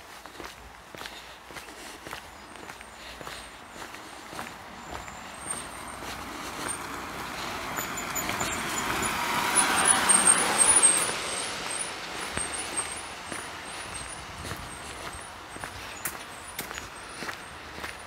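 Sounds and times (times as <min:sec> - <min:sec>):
car driving past: 0:04.3 - 0:15.6.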